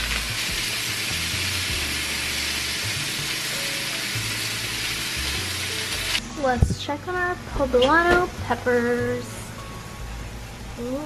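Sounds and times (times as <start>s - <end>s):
meat sizzling in a skillet: 0.0s - 6.2s
background music bass line: 0.0s - 10.9s.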